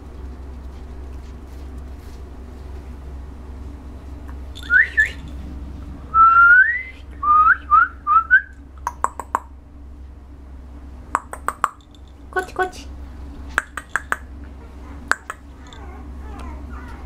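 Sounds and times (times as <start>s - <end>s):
person whistling rising whistles: 4.6s - 5.2s, 6.1s - 8.6s.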